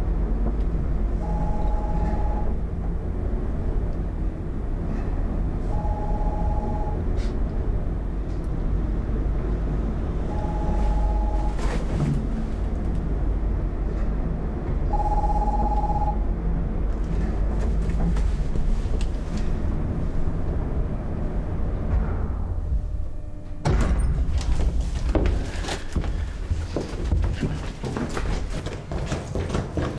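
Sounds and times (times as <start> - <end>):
lift car rumble: 0.0 - 27.1
mobile phone ringing: 1.2 - 2.5, 5.7 - 7.0, 10.3 - 11.6, 14.9 - 16.2.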